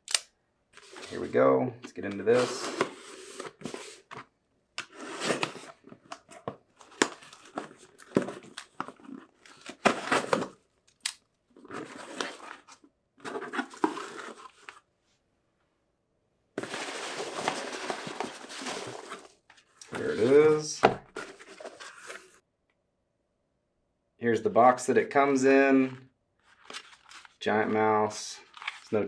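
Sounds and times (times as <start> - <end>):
cardboard rustling: 0.8 - 1.4, 2.0 - 4.3, 4.9 - 10.6, 11.6 - 14.8, 16.6 - 22.4, 26.4 - 27.8, 28.4 - 29.0.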